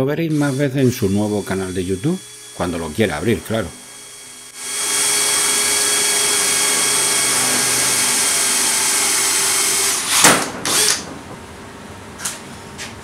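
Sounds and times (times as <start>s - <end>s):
drill boring through sheet metal: 0.3s - 11.0s
loud knocks: 10.2s - 11.5s.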